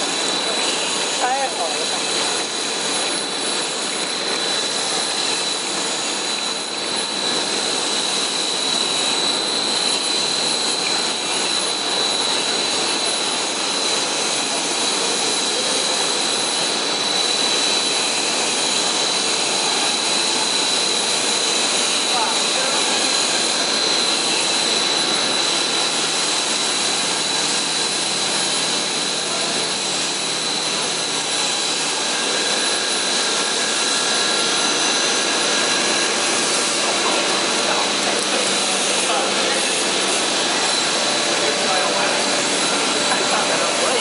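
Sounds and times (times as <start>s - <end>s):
high machine whine: 0.0s - 44.0s
machine rushing noise: 21.8s - 44.0s.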